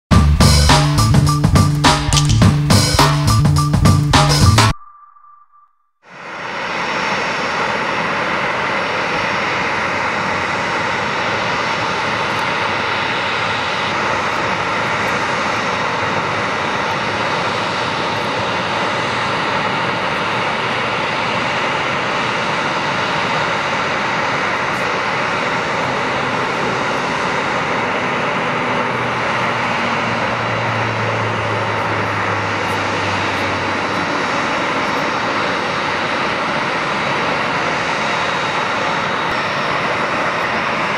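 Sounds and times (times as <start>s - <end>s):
low hum: 0.1s - 6.8s
jet engines idling: 6.2s - 40.9s.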